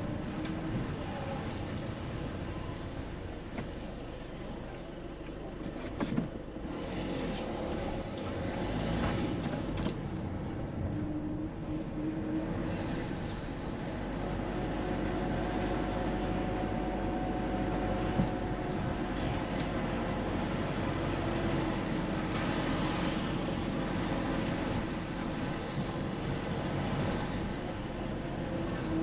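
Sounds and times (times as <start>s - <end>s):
moving vehicle rumble: 0.0s - 29.0s.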